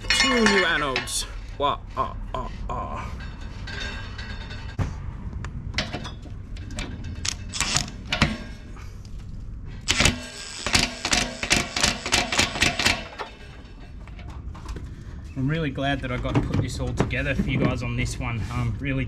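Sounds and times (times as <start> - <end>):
impact wrench rattling in bursts: 9.8 - 14.2.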